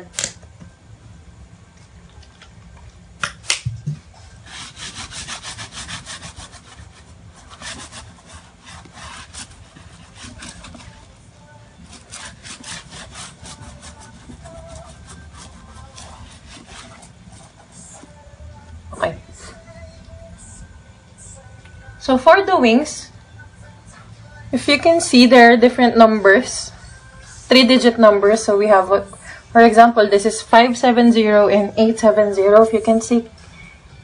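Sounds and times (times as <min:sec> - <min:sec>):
tissue rubbing on screen glass: 0:04.3 - 0:18.3.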